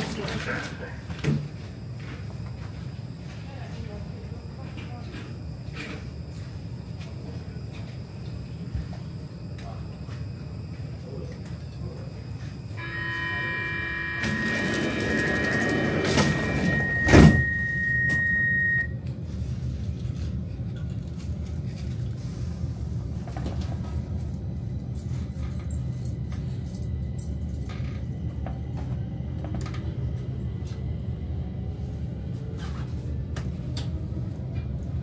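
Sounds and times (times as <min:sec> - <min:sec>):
train rumbling: 0:00.0 - 0:35.0
door-closing warning tone: 0:11.3 - 0:19.0
train doors shutting thump: 0:12.8 - 0:18.4.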